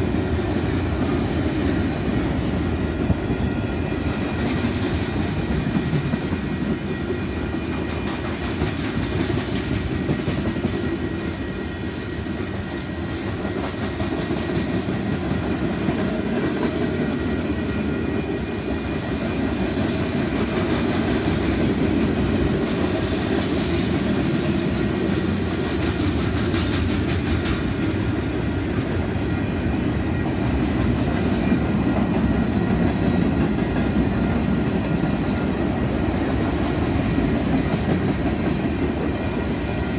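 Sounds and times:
freight train wheels on rails: 0.0s - 39.9s.

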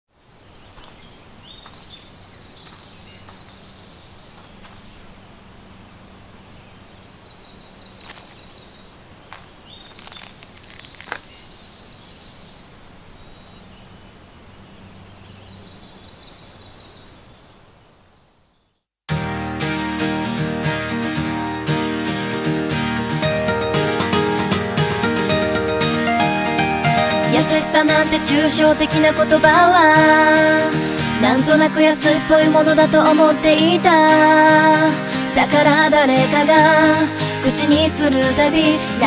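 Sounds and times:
small birds trilling: 0.2s - 18.8s
soft clicks and rustles: 8.0s - 8.5s, 9.3s - 11.4s.

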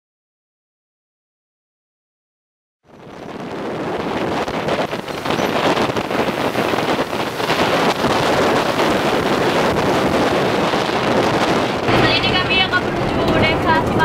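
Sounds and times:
wind buffeting microphone: 2.8s - 14.0s
road vehicle running noise: 2.9s - 14.0s.

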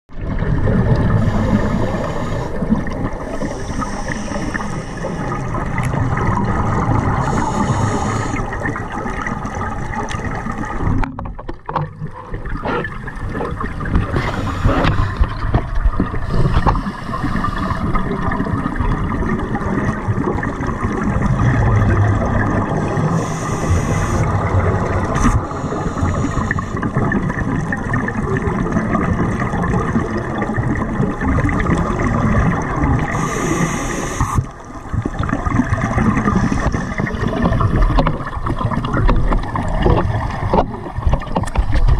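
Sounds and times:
underwater rumble: 0.1s - 41.9s
bubbling exhales: 0.2s - 11.1s, 12.0s - 41.2s
diver breathing through regulator: 1.0s - 5.8s, 6.9s - 8.8s, 12.6s - 15.5s, 16.1s - 18.2s, 22.7s - 26.8s, 33.0s - 34.6s.

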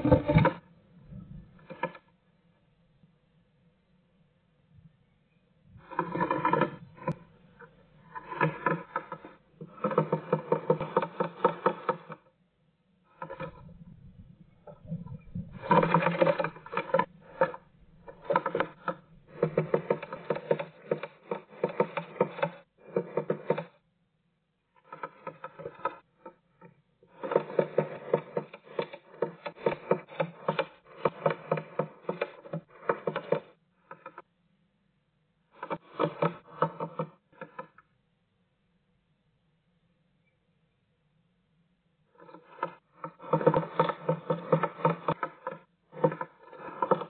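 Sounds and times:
bird pecking on wood: 1.6s - 2.0s, 5.8s - 12.2s, 14.7s - 23.8s, 24.8s - 34.2s, 35.6s - 37.8s, 42.2s - 47.0s.

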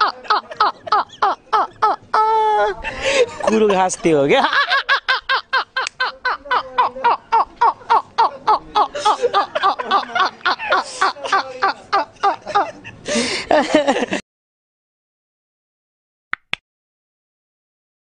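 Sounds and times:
men laughing hard: 0.0s - 14.2s.

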